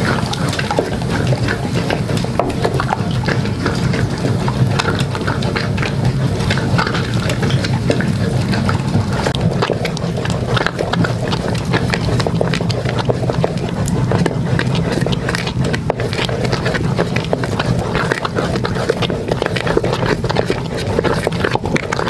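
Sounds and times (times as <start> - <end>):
wooden stick knocking and scraping pot: 0.0 - 4.2
steady low rumble: 0.0 - 20.0.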